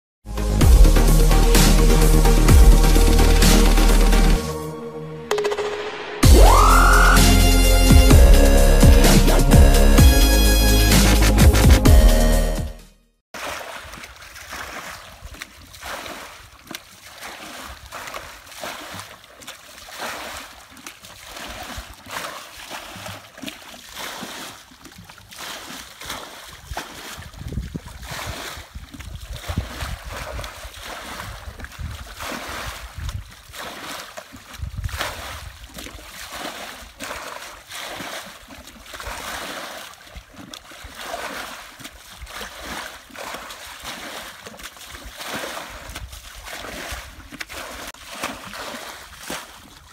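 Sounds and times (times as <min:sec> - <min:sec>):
muddy water sloshing and splashing: 0:13.3 - 0:49.9.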